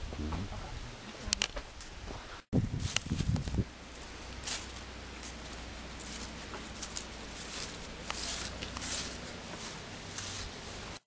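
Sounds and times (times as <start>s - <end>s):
background hiss: 0.0s - 11.0s
footsteps on dry leaves: 2.6s - 11.0s.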